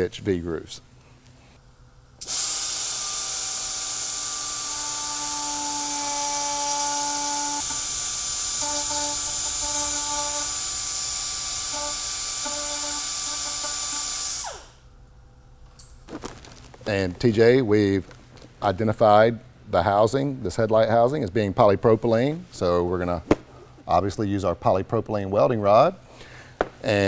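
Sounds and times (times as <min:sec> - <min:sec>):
die grinder whining: 0:02.2 - 0:14.7.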